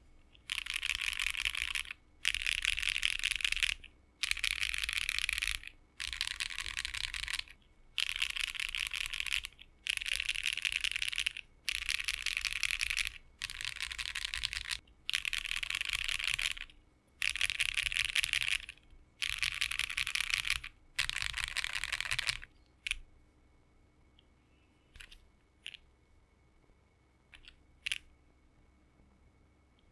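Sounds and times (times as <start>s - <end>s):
fast mechanical keyboard typing: 0.4s - 23.0s, 27.4s - 28.0s.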